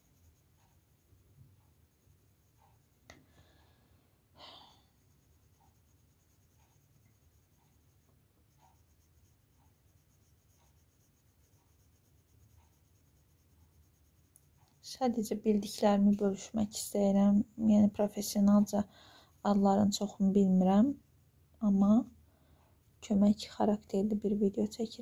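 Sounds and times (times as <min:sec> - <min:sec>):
pencil strokes on paper: 0:00.0 - 0:03.8, 0:04.7 - 0:21.0.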